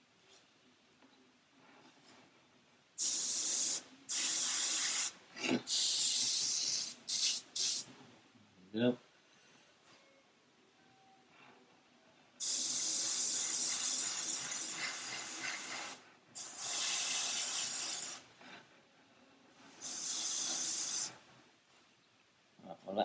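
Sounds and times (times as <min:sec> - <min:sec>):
airbrush hissing: 0:03.0 - 0:07.9, 0:12.4 - 0:18.3, 0:19.6 - 0:21.2.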